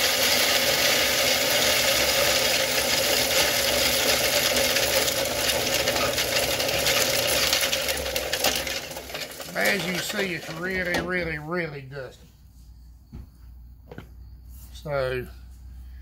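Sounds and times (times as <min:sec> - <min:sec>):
corn mill grinding kernels: 0:00.0 - 0:11.9.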